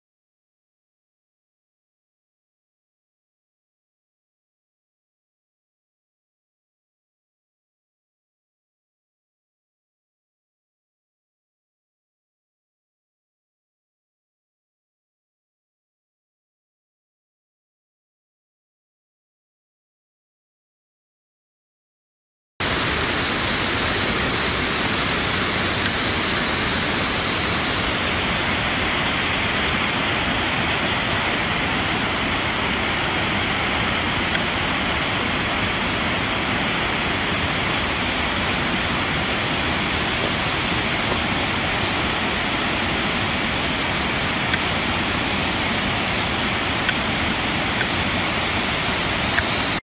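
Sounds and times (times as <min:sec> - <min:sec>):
waterfall rushing: 0:22.6 - 0:49.8.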